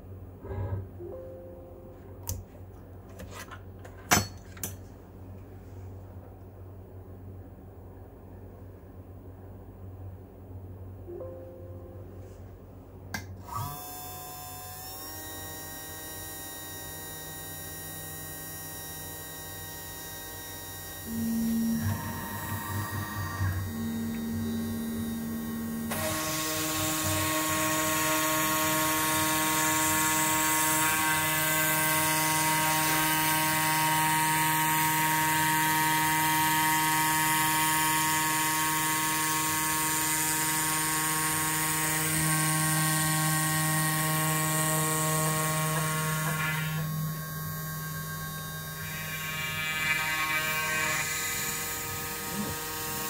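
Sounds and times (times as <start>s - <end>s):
cnc machine motors whining: 13.4s - 53.0s.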